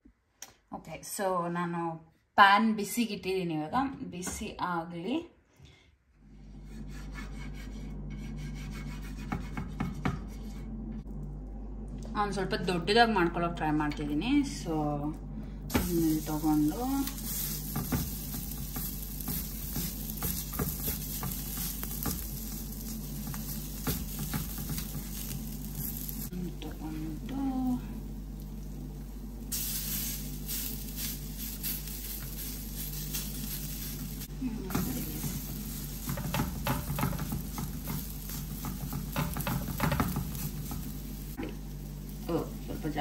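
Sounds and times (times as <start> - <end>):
batter sizzling on griddle: 15.7 - 26.4, 27.0 - 43.0.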